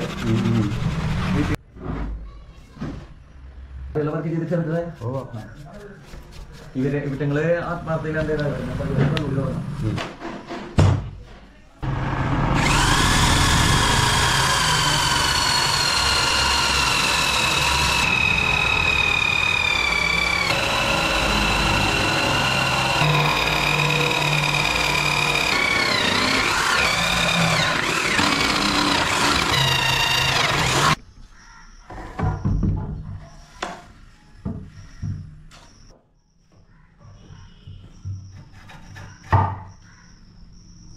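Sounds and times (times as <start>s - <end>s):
electric drill boring into wood: 0.0s - 1.6s, 11.8s - 31.0s.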